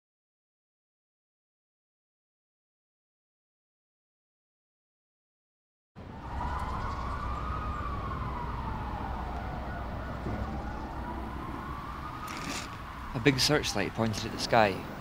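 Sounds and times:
low city rumble: 6.0 - 15.0
siren wailing: 6.0 - 15.0.

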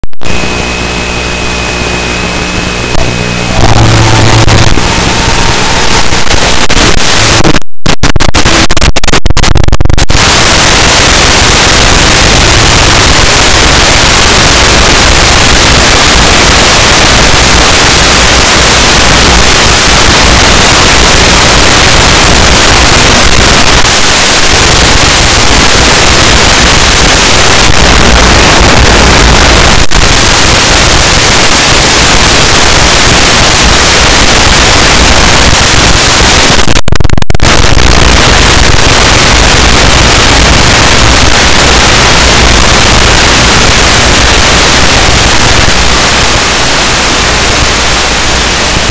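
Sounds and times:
static hiss: 0.2 - 48.9.

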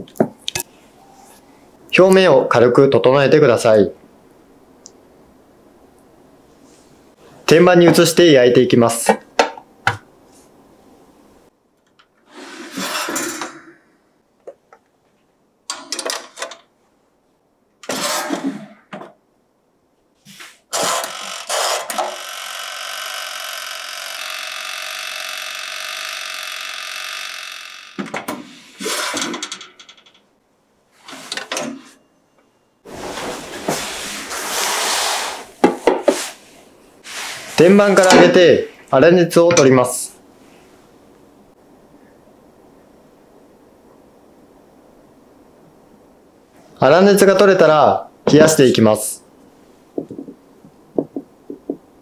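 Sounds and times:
timer buzzing whirr: 20.9 - 28.0.

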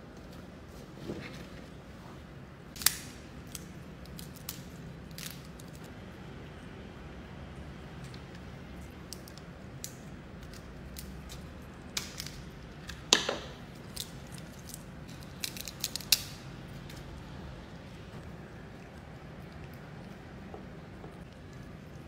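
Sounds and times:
low steady hum: 0.0 - 22.0
crab shell crackling: 8.9 - 17.3.

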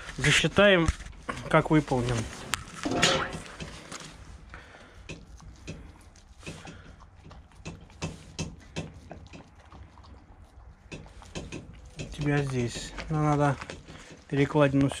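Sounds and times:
metal bowl clinking: 2.8 - 3.6
dog eating wet clicks: 3.4 - 15.0.

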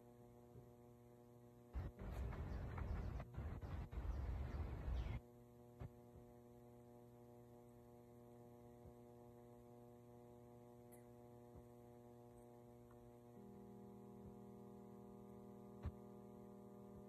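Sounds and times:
faint steady hum of tones: 0.0 - 17.0.

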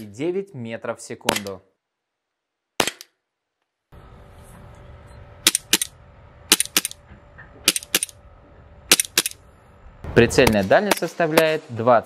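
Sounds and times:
outdoor background hiss: 0.0 - 12.0
airsoft pistol shots: 2.8 - 3.2, 6.5 - 7.0, 8.9 - 9.4, 10.4 - 11.6.

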